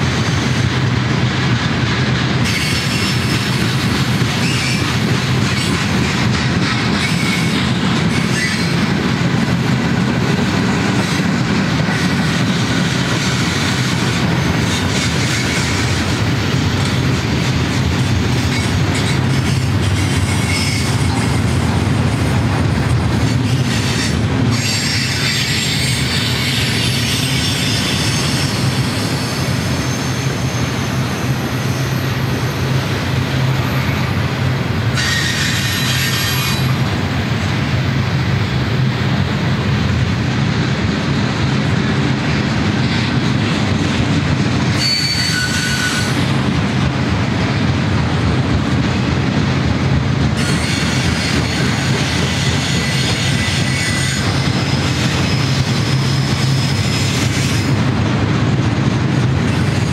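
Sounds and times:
train wheels rumbling on rail: 0.0s - 59.9s
high wheel squeal: 2.4s - 6.0s, 6.9s - 8.8s, 18.3s - 21.6s, 23.3s - 32.8s, 34.9s - 36.9s, 44.7s - 46.4s.

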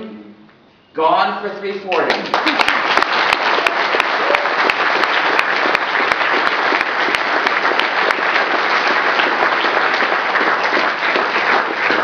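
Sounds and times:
audience applauding in a hall: 1.9s - 12.0s
hands clapping close by: 1.9s - 12.0s.

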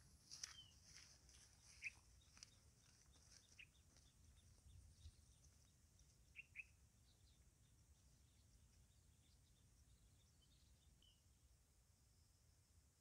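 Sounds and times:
bird chirps: 0.4s - 11.2s.

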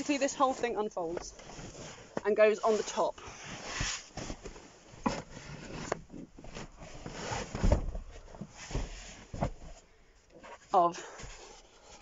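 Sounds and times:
foam cushions thumping and rustling: 6.1s - 9.8s.

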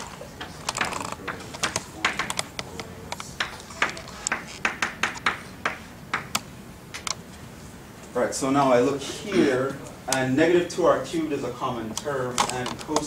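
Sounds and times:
chalk tapping and scraping on blackboard: 0.4s - 6.4s.

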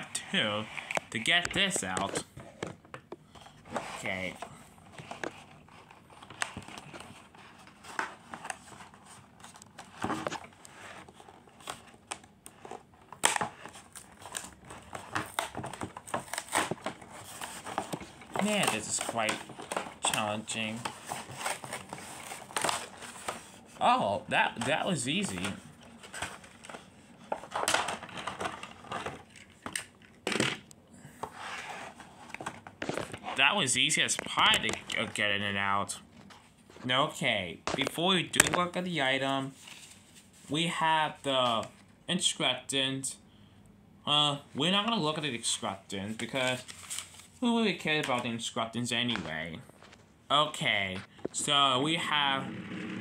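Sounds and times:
packaging rustling and scraping: 0.2s - 30.0s, 31.2s - 35.4s, 46.2s - 47.4s.

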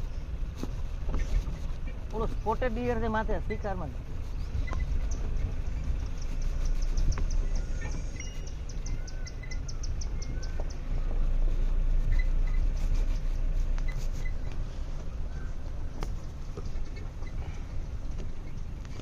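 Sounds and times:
vehicle engine rumble: 0.0s - 19.0s
bird chirps: 4.3s - 14.5s
thin high ticks: 6.1s - 11.2s.

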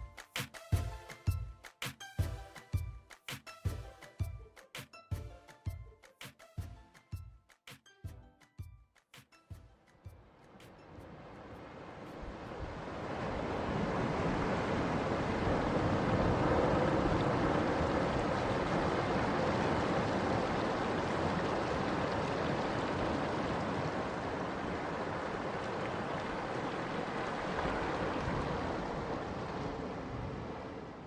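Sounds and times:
rushing outdoor background noise: 10.1s - 31.0s.

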